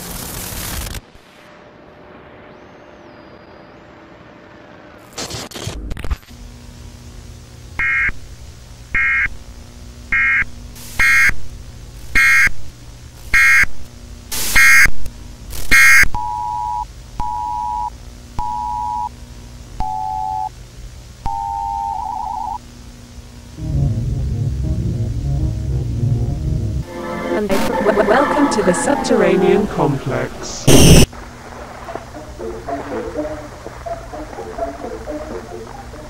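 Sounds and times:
static burst: 0.0s - 1.4s, 14.3s - 16.0s, 29.9s - 36.0s
tape hum: 15.0s - 20.6s, 21.2s - 22.6s, 23.6s - 36.0s
electronic beeps: 19.8s - 20.5s, 21.3s - 22.6s, 30.6s - 31.1s.

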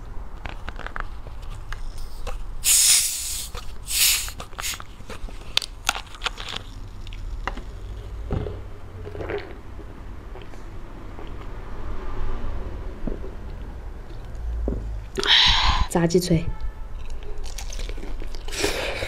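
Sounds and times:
carbonation hissing out: 2.6s - 4.8s.

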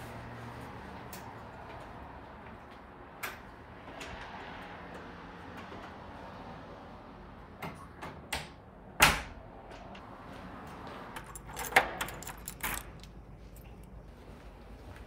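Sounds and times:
keys jangling: 11.1s - 14.0s
key turning in lock: 11.2s - 13.9s.

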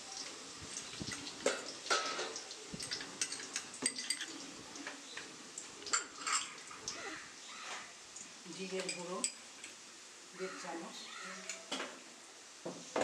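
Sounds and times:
spoon clinking against bowl: 2.8s - 4.4s.

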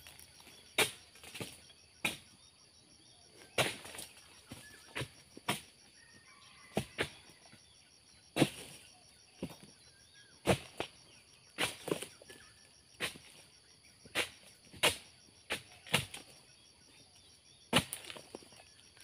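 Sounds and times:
chisel chopping palm stalks: 0.5s - 2.4s, 3.6s - 5.7s, 8.4s - 8.8s, 10.4s - 10.9s, 11.6s - 12.1s, 13.0s - 13.4s, 14.1s - 16.3s, 17.7s - 18.3s.

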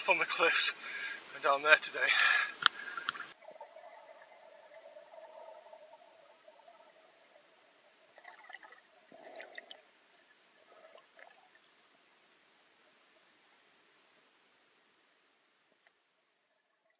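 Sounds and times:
muffled underwater noise: 0.0s - 11.6s
water gurgles and crackles: 0.0s - 16.9s.

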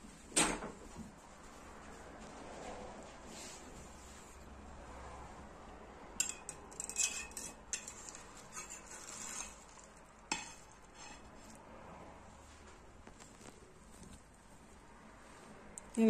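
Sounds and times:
metal server scraping glass dish: 6.2s - 9.6s, 10.3s - 11.3s.

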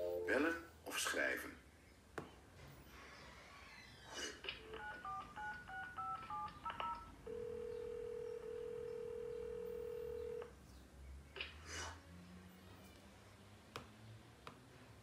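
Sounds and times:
telephone keypad beeps: 4.7s - 10.4s
steady dial tone: 4.7s - 10.5s.

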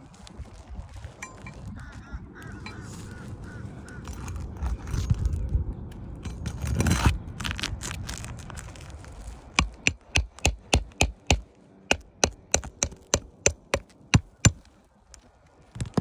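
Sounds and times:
bird calling: 1.2s - 4.6s.

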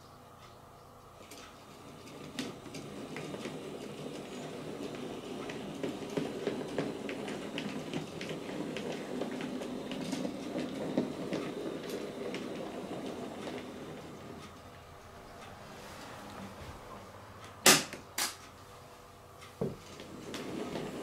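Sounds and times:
wheels clicking over rail joints: 1.2s - 15.6s, 19.5s - 21.0s
model train motor hum: 1.3s - 14.7s, 20.0s - 21.0s.

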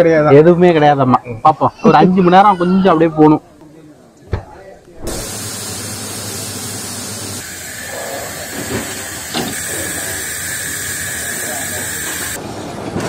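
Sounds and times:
steam locomotive hissing: 5.1s - 12.4s.

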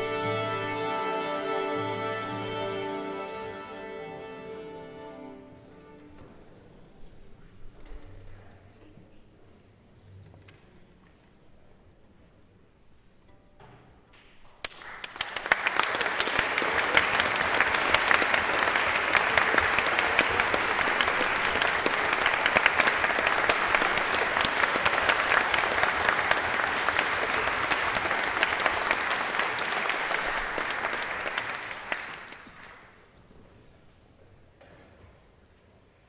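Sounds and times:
audience applauding: 14.6s - 33.1s.

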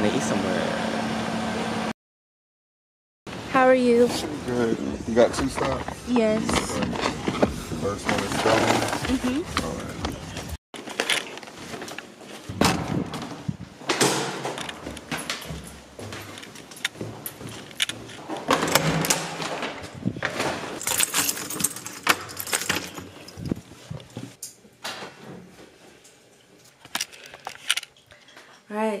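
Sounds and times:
keys jangling: 14.6s - 18.2s, 20.8s - 23.7s.

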